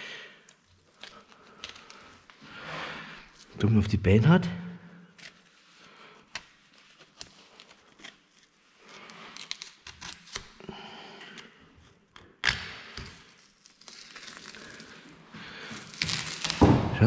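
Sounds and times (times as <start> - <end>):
soft tearing of meat: 0.4 - 2.4, 5.1 - 10.7, 11.4 - 16.6.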